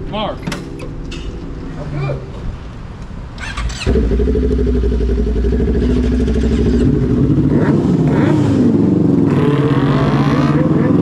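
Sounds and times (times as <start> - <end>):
motorcycle engine idling and revving: 3.4 - 11.0.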